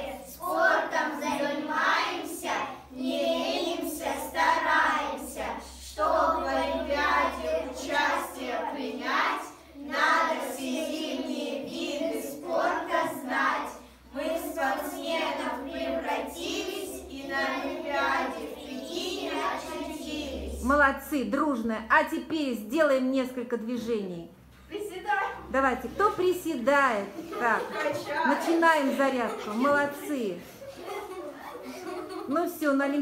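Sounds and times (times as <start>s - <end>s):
girls singing in unison: 0.0s - 20.6s.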